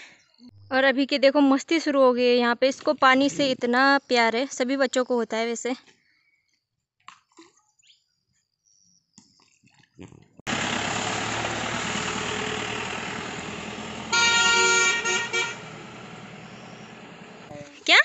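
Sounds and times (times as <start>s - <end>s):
vehicle passing on wet road: 10.5s - 17.5s
vehicle horn beeping: 13.7s - 17.2s.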